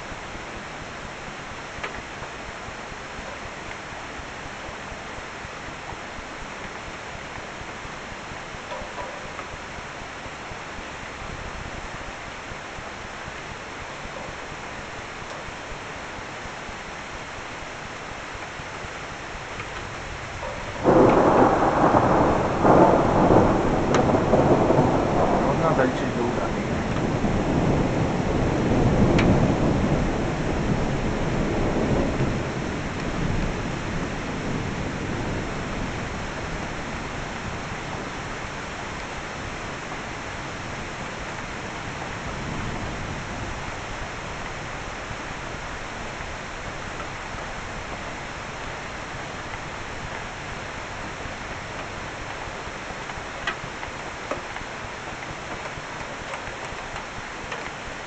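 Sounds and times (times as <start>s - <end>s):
steady rain: 0.0s - 58.0s
thunder rolling: 20.4s - 48.2s.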